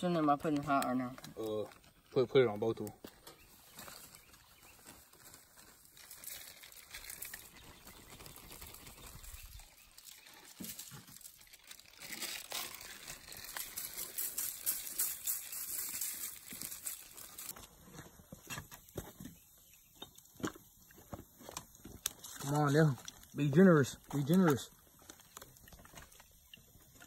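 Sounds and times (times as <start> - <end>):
aluminium foil crinkling: 0.0 - 19.1, 20.4 - 27.0
plastic bag rustling: 3.3 - 18.4.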